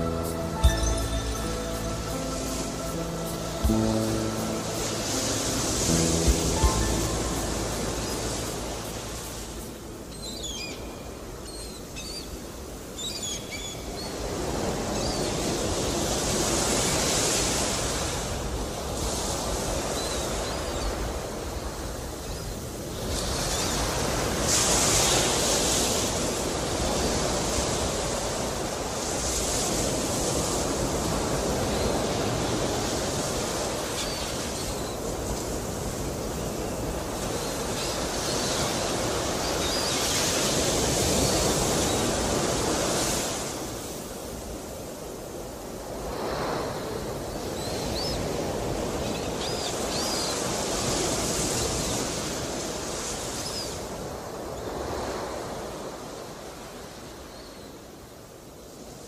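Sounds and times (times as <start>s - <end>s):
short high chirps: 0.0s - 8.6s
ocean waves washing: 0.0s - 59.0s.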